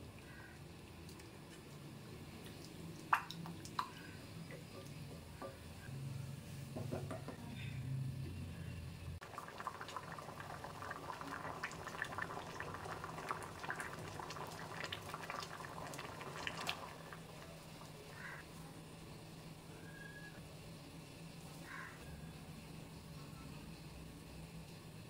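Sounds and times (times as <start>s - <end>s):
pot boiling with bubbling pops: 0.6s - 5.6s, 9.2s - 18.5s.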